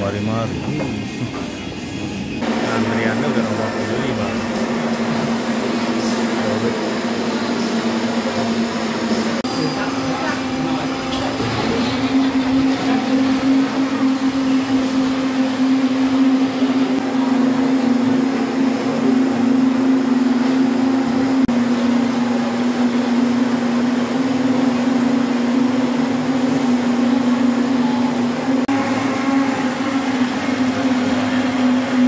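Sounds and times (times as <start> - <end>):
blender motor humming: 2.4 - 32.0.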